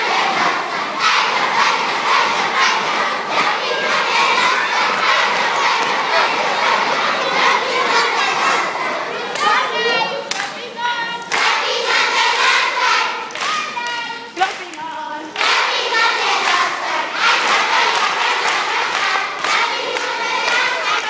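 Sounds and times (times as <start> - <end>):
children clapping: 0.0 - 21.0
children singing: 0.0 - 21.0.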